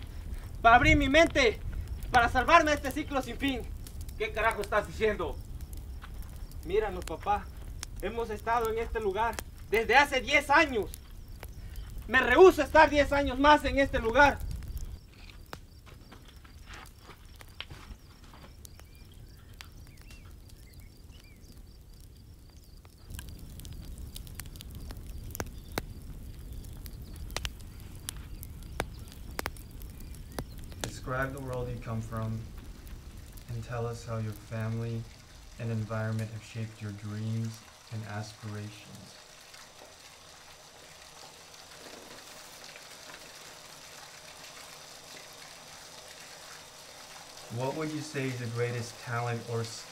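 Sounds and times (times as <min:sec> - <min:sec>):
bonfire crackling and popping: 0:00.0 - 0:49.9
faint hiss: 0:00.0 - 0:49.9
faint bird chirps: 0:10.9 - 0:12.1, 0:14.6 - 0:23.1, 0:24.7 - 0:31.4.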